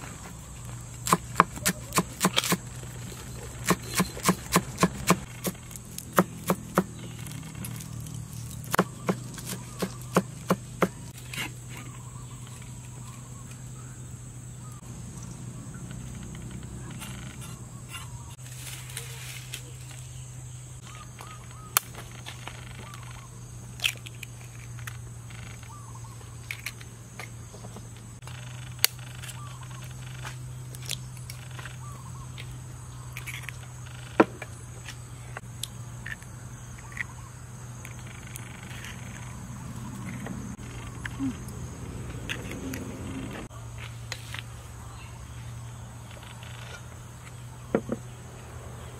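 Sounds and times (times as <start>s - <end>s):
high insect drone: 12.0s - 48.9s
small chirps: 34.8s - 43.5s.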